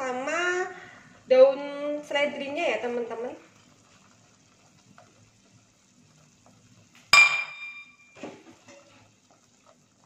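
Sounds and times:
kitchenware clinking: 7.2 - 9.0.

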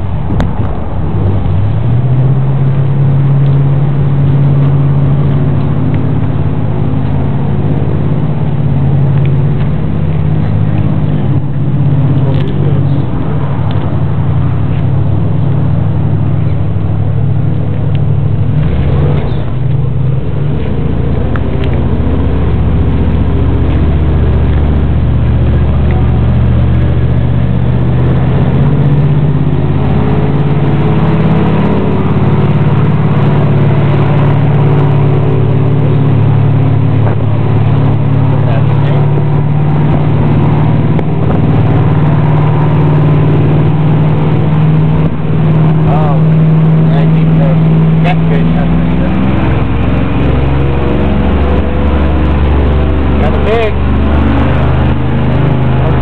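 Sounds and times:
airboat engine running: 0.0 - 56.0.

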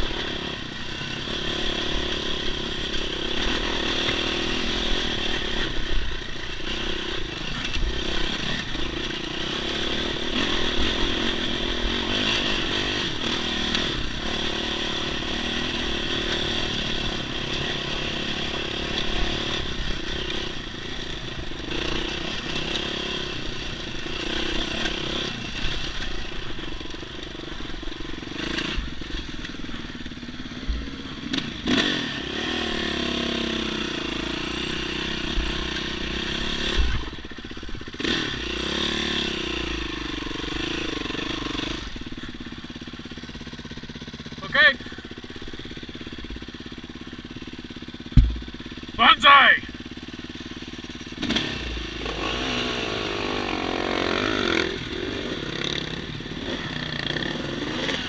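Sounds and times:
dirt bike engine revving: 0.0 - 58.0
sharp knocks: 48.1 - 48.6.

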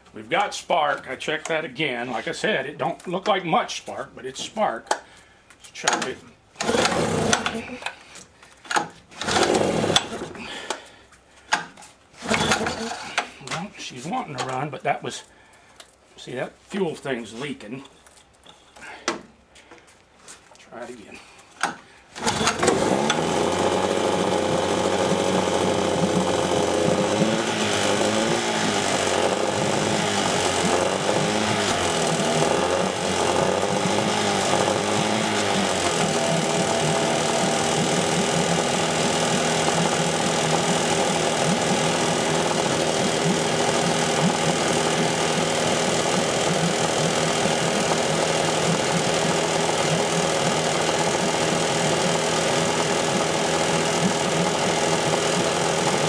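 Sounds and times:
outboard motor starting and running: 5.8 - 10.9, 11.6 - 13.6, 21.6 - 56.0.

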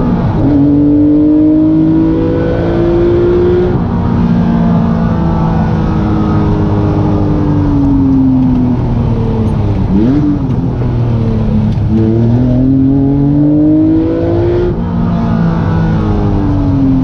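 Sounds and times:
car engine revving from inside: 0.0 - 8.2, 11.7 - 17.0.

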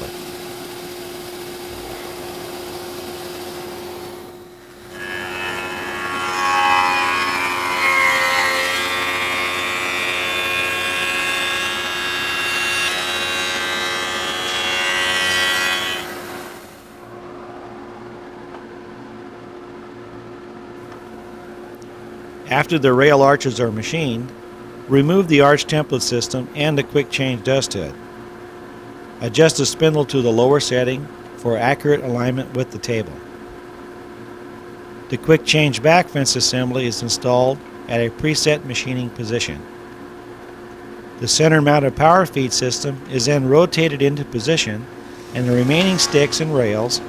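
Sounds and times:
cutter whine: 0.0 - 17.2, 42.0 - 47.0
shaper spindle humming: 44.4 - 47.0.

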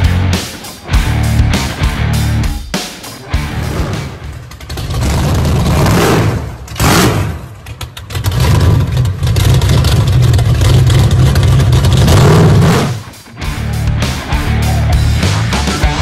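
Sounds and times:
engine revving and rumbling: 3.3 - 16.0.

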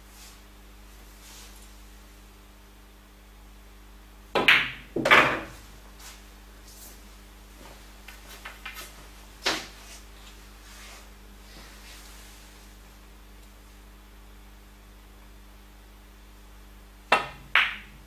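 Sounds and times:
billiard balls clacking: 4.4 - 5.6, 17.1 - 18.0
cue tip striking ball: 4.4 - 5.6, 17.1 - 18.0.

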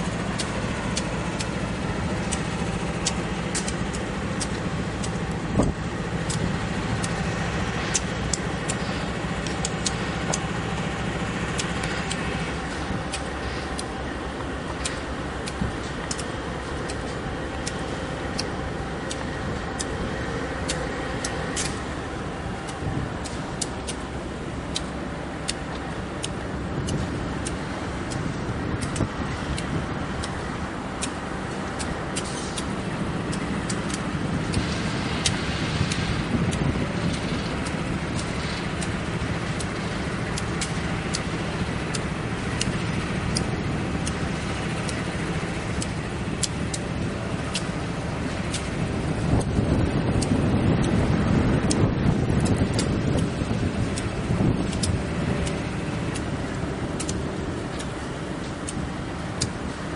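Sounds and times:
diesel locomotives rumbling: 0.0 - 59.9
short sharp ticks: 31.8 - 47.8, 51.6 - 58.8.

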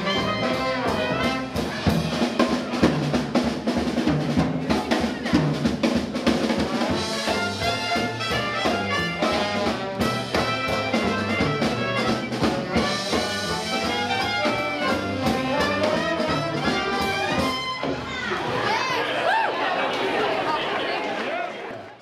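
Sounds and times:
trumpet: 0.0 - 3.2, 6.7 - 18.1
dixieland jazz band playing: 0.0 - 18.4
drum kit beat: 0.0 - 18.5
saxophone: 7.0 - 18.0.

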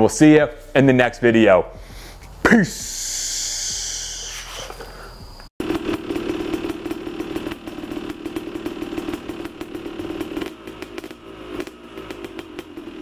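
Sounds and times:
grinder cutting steel chain: 5.6 - 13.0.

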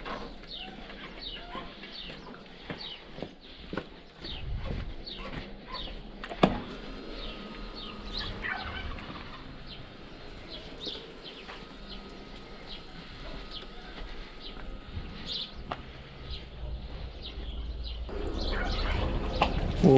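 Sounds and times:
birds chirping: 0.0 - 19.9
rattling bird calls: 7.0 - 15.6, 18.1 - 19.8.

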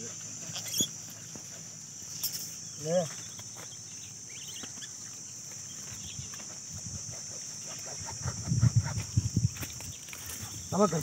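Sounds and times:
faint chirps: 0.0 - 6.6
insects droning: 0.0 - 11.0.

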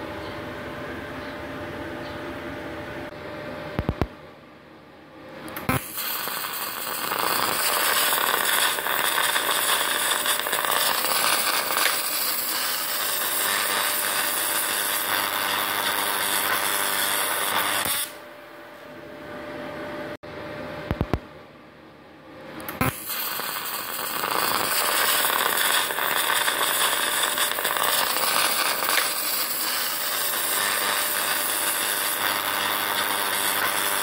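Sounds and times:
welding arc striking click: 5.5 - 18.2, 22.6 - 34.0
welding arc hissing: 5.6 - 18.2, 22.8 - 34.0.

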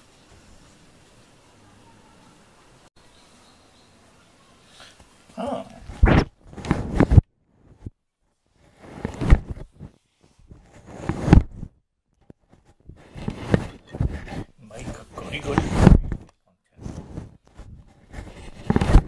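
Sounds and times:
cat fur rubbing on microphone: 5.8 - 11.7, 12.4 - 16.2, 16.8 - 19.0.

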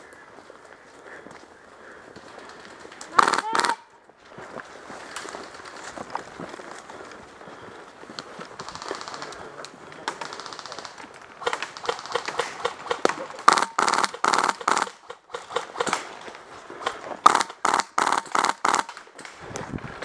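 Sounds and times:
airsoft rifle rapid shots: 3.1 - 3.8, 8.6 - 9.4, 10.1 - 16.2, 16.8 - 19.0.

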